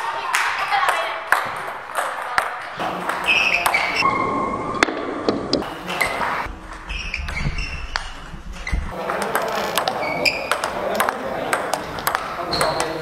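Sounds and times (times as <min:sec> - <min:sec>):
table tennis ball pinging: 0:00.3 - 0:04.2, 0:08.8 - 0:13.0.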